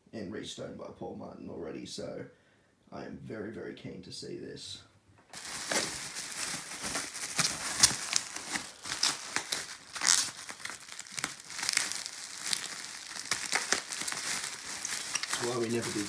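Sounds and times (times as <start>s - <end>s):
bubble wrap crinkling: 5.3s - 16.0s.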